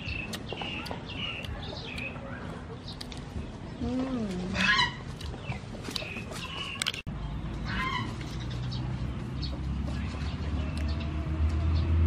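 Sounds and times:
low engine hum: 7.1s - 12.0s.

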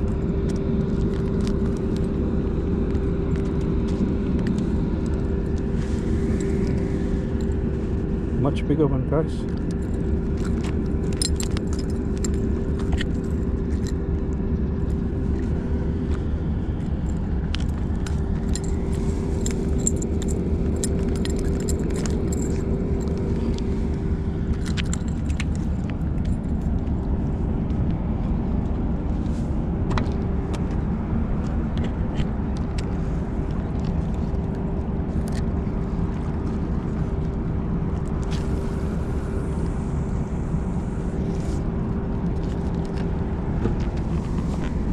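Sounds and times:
low rumble with hum: 0.0s - 44.9s
fishing tackle clicking and jingling: 9.6s - 14.1s, 17.0s - 23.7s, 24.5s - 26.8s.

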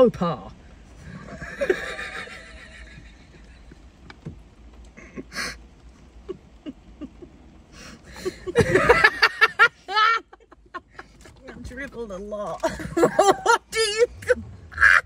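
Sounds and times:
loud laughter: 1.2s - 3.5s, 8.2s - 10.9s, 12.7s - 13.6s, 14.7s - 15.0s
faint clicks and rustling: 2.8s - 8.1s.

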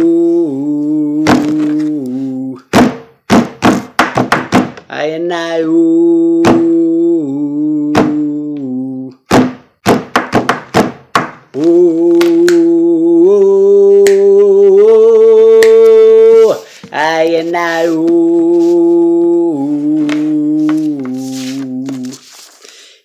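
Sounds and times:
man humming: 0.0s - 2.7s, 5.5s - 9.2s, 11.5s - 22.2s
man beatboxing pops and clicks: 11.5s - 12.8s, 13.4s - 14.7s, 15.5s - 16.0s.

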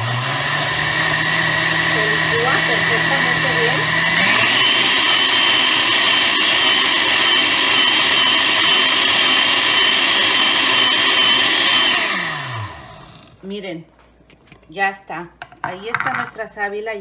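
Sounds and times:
blender motor whining: 0.0s - 13.4s.

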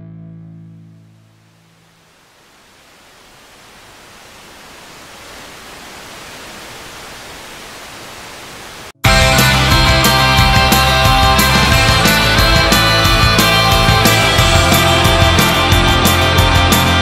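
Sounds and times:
steady hiss: 1.4s - 9.0s
loud rock music with distorted guitar: 9.0s - 17.0s.

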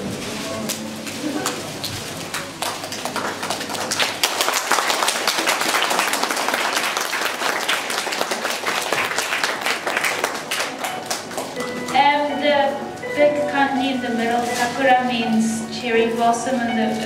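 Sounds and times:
audience applauding: 1.1s - 12.0s.

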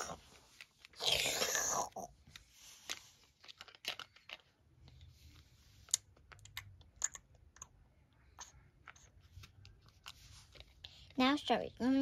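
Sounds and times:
plastic toys clicking on plate: 5.9s - 7.8s.

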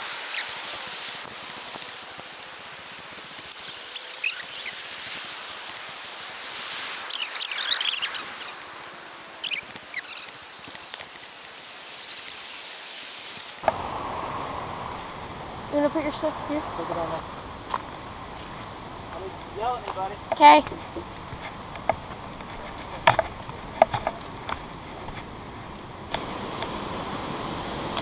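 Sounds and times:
grass rustling: 0.0s - 13.8s, 15.8s - 27.0s
running water: 0.0s - 13.8s
bird chirps: 3.6s - 4.8s, 7.0s - 8.6s, 9.4s - 10.4s, 11.9s - 13.2s.

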